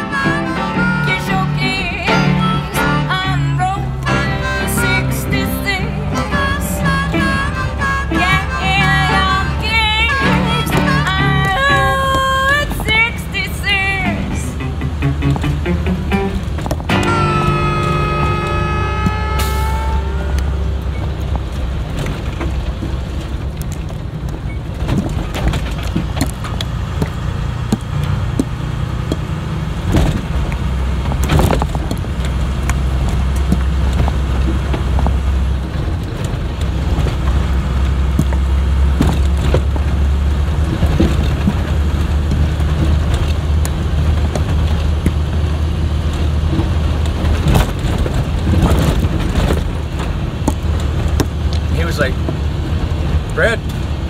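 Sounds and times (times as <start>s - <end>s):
bus engine and road noise: 0.0s - 54.0s
knocks and rattles over bumps: 6.8s - 54.0s.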